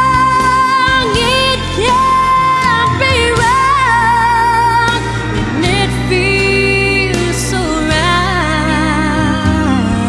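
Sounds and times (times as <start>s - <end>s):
background song melody: 0.0s - 10.0s.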